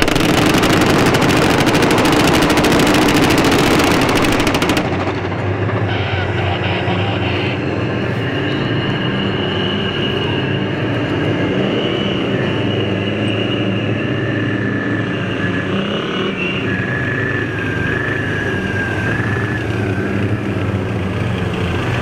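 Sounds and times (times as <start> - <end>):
tank tracks rattling: 0.0 - 6.0
tank engine with high whine: 0.0 - 22.0.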